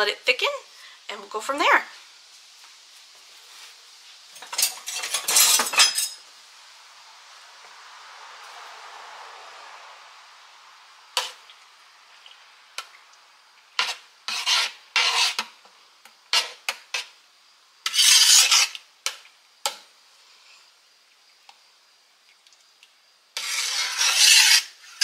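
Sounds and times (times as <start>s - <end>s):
rasping scrapes: 13.8s - 15.5s, 17.8s - 18.8s, 23.4s - 25.0s.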